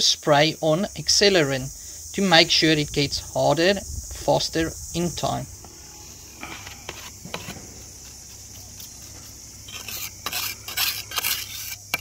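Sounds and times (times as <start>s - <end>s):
trowel scraping: 5.9s - 12.0s.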